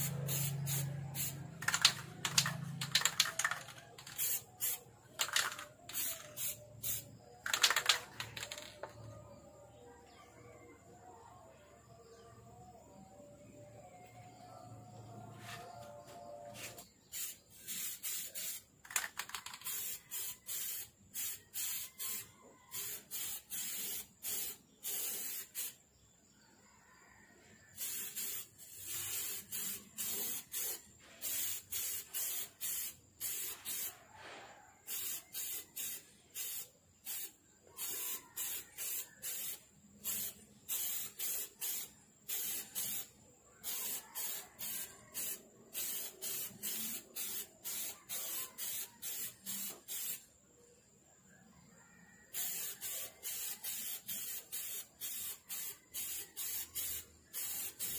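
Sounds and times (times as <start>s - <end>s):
spray-paint can hissing: 0.0s - 9.0s, 16.6s - 25.8s, 27.8s - 34.0s, 34.8s - 50.3s, 52.3s - 57.9s.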